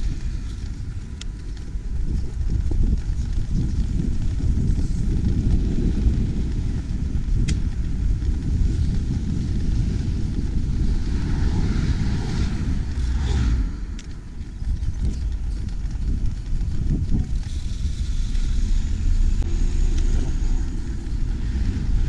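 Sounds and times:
wind buffeting microphone: 0.0s - 22.0s
hiss: 17.4s - 21.8s.

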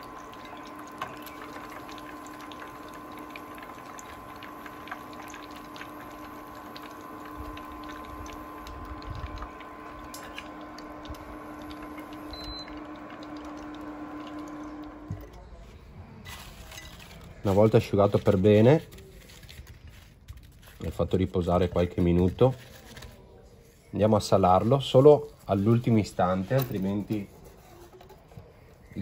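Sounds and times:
leaves sizzling in hot oil: 0.0s - 15.0s
electric hum: 0.0s - 15.4s.

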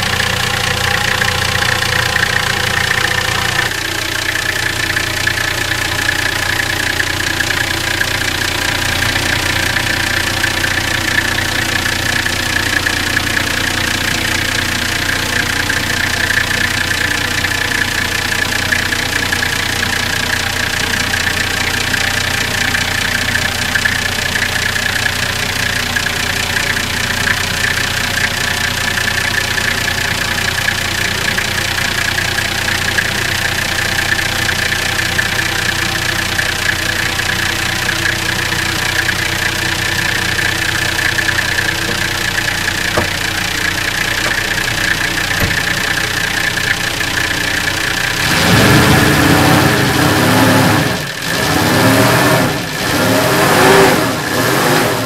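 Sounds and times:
diesel engine idling and revving: 0.0s - 55.0s.

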